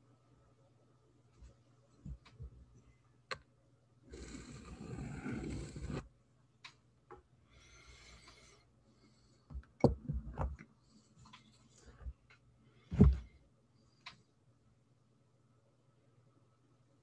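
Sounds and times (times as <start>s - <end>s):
pencil scraping on paper: 4.1s - 6.1s.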